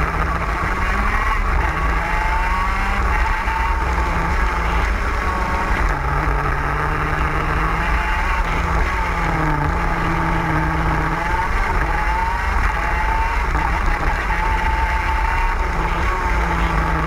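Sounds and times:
kart engine at high revs: 0.0s - 17.0s.

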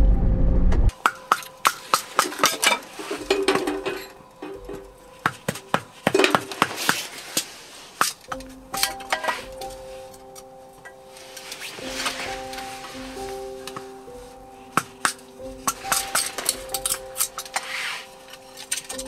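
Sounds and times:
metal and glass clinking: 1.0s - 6.8s, 8.0s - 13.1s, 14.8s - 17.7s, 18.3s - 19.0s.

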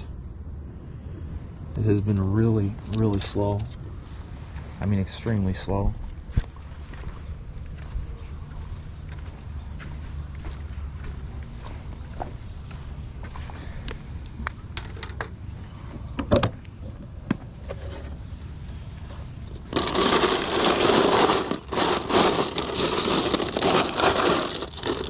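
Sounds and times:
ice cubes rattling and crunching: 19.6s - 25.0s.

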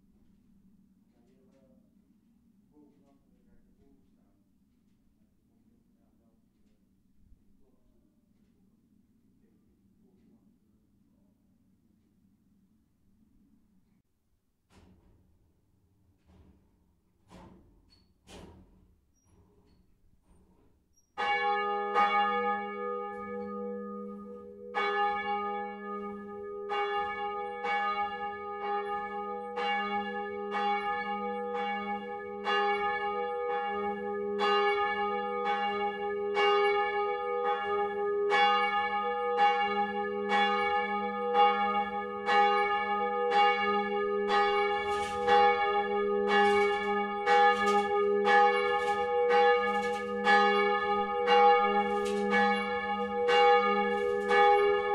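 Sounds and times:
church bell ringing: 21.2s - 54.9s.

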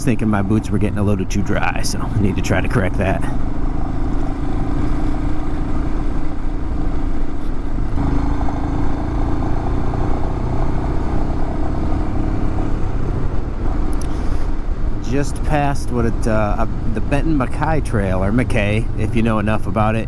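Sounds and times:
motorcycle engine running: 0.2s - 14.3s.

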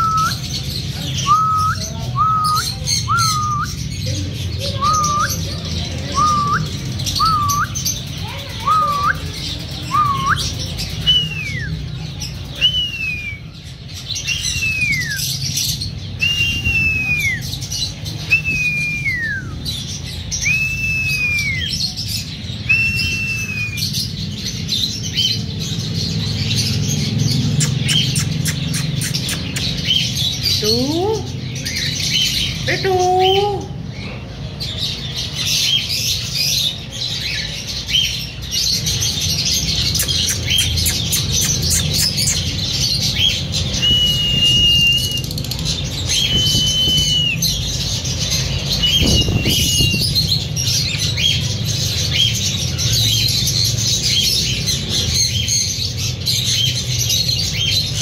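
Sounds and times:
birds whistling: 0.0s - 58.0s
high chirps and clicks: 27.5s - 30.2s, 39.8s - 42.7s.

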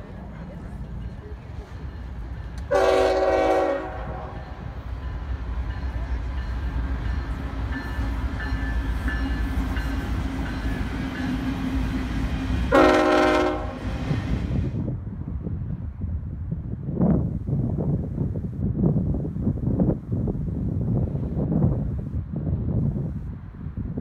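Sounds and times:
freight train rumbling by: 0.0s - 24.0s
train air horn blasts: 2.7s - 4.8s, 12.7s - 14.1s.

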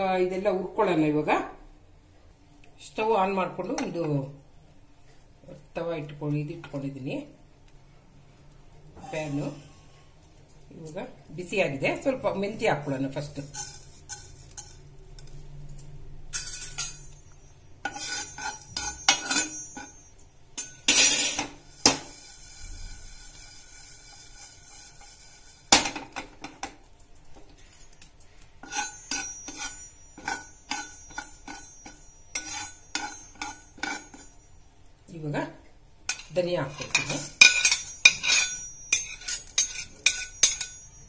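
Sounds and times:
metal spatula scraping a pan: 9.0s - 11.2s, 12.0s - 15.6s, 16.3s - 26.7s, 27.5s - 34.6s, 36.1s - 41.0s.

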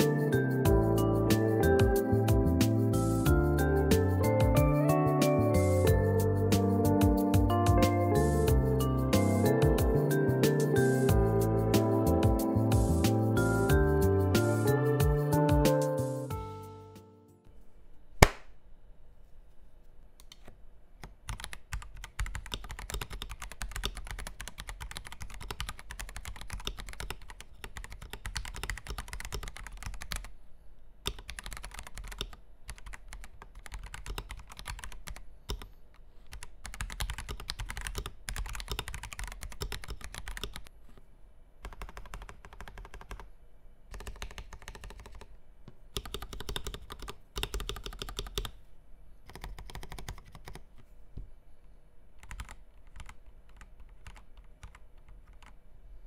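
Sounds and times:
mechanical keyboard typing: 21.0s - 30.3s, 31.0s - 35.7s, 36.3s - 40.7s, 41.6s - 43.3s, 43.9s - 45.3s, 45.9s - 48.6s, 49.2s - 50.7s, 52.2s - 55.6s.

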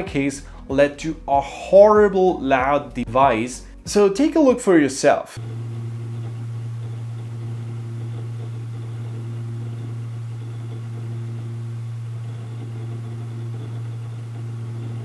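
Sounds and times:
hard drive enclosure humming: 5.4s - 15.0s.

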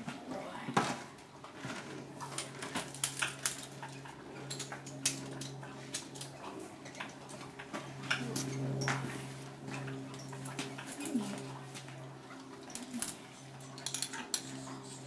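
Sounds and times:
steady low hum: 0.0s - 15.0s
metal buckles clinking: 12.4s - 15.0s.

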